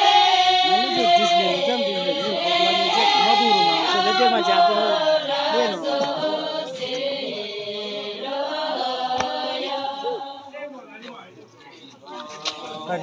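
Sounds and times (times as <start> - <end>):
melodic chanting: 0.0 - 10.6.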